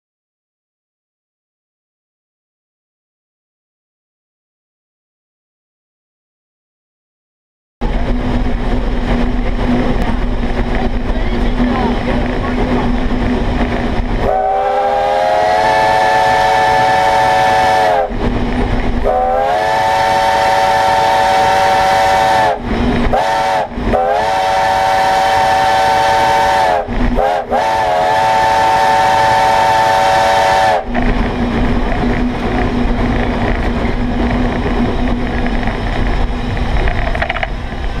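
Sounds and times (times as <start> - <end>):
locomotive cab rumble: 7.8 - 14.8, 15.5 - 38.0
steam locomotive chime whistle: 14.2 - 18.2, 19.0 - 30.9
steam hiss: 14.2 - 31.2.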